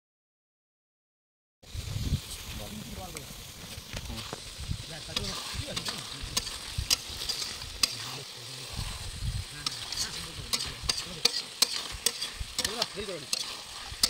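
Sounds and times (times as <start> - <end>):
frying sizzle: 1.6 - 14.0
metal spatula scraping pan: 5.1 - 14.0.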